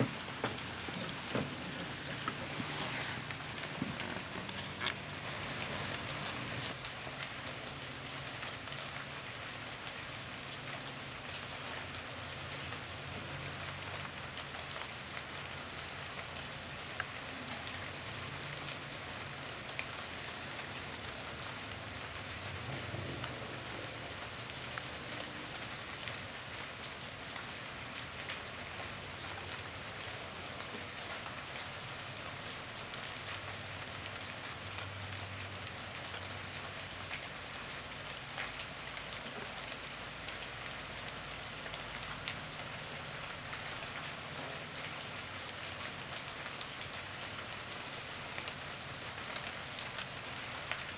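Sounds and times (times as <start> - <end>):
rain falling: 0.0 - 50.9.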